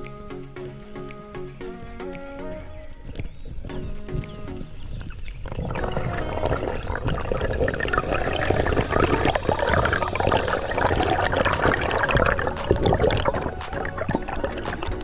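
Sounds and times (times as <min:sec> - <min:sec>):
water splashing and bubbling: 0:03.1 - 0:15.0.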